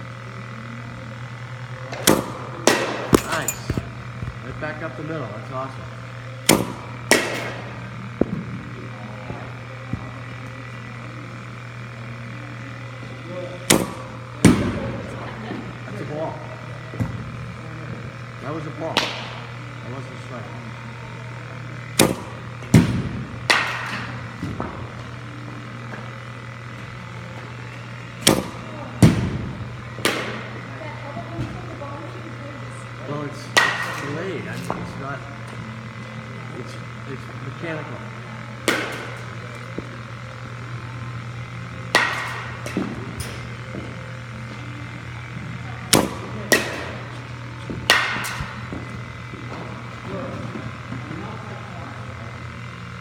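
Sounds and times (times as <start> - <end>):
pitching machine hum: 0.0 - 53.0
baseball bat cracks echoing: 1.2 - 4.2, 6.0 - 12.0, 13.6 - 15.0, 18.2 - 19.8, 21.2 - 24.8, 27.9 - 30.6, 33.4 - 35.0, 38.5 - 49.6
ball knocking cage: 2.0 - 4.0.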